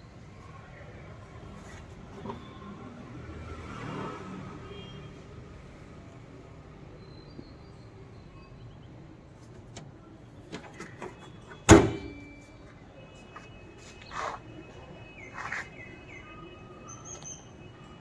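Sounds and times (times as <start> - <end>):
car bonnet slamming shut: 11.6 - 12.2.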